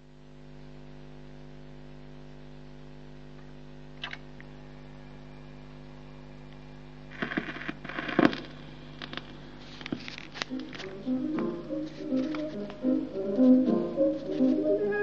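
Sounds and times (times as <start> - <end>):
record player mains hum: 0.0 - 15.0
stylus scraping and thumping: 7.2 - 11.0
faint groove clicks: 10.3 - 14.7.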